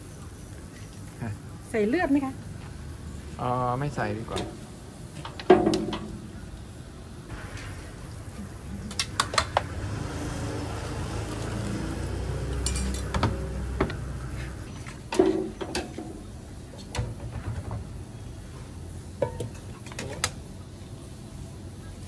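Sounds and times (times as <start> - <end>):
metal ladle clinking on pots: 12.6 - 13.4, 19.2 - 20.3.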